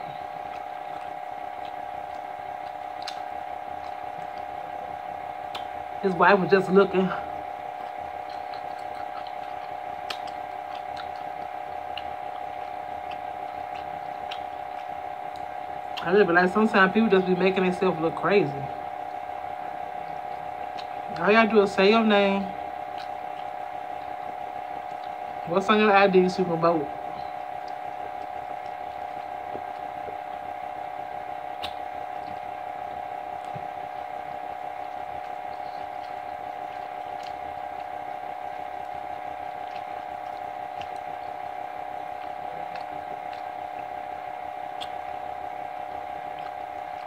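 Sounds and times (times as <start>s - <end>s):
chewing: 0.0s - 47.0s
steady hum: 0.0s - 47.0s
fingers pulling apart fried chicken: 7.7s - 16.3s, 31.6s - 32.4s.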